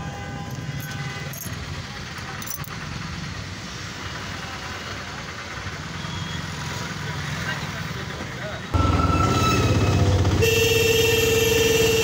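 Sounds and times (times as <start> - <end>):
roadside traffic: 0.0 - 12.0
vehicle engine running: 7.6 - 12.0.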